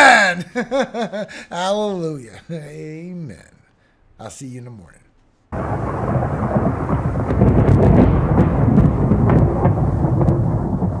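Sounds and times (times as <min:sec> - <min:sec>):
rolling thunder: 0:05.6 - 0:11.0
thunder crackles: 0:05.6 - 0:11.0.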